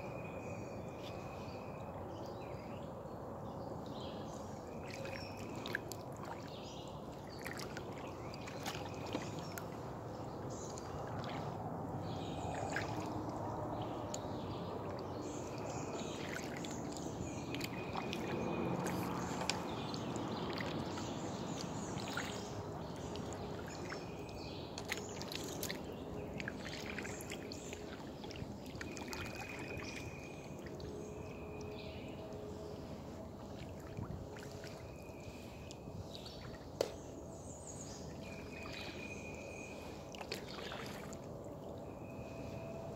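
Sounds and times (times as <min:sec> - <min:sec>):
small drips and clicks: 0:04.6 - 0:11.6, 0:12.4 - 0:31.0, 0:40.1 - 0:41.9
paddle splashing in water: 0:04.8 - 0:32.0, 0:32.6 - 0:41.7.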